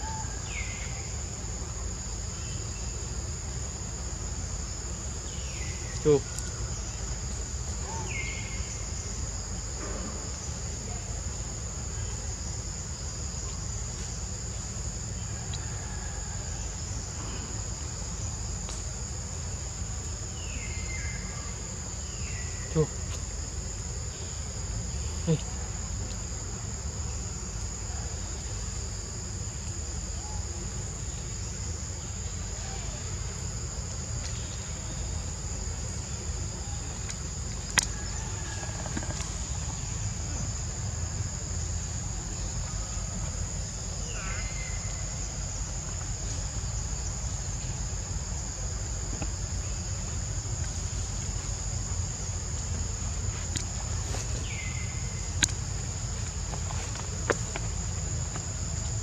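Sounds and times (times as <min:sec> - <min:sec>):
insects shrilling: 0:49.6 - 0:57.9.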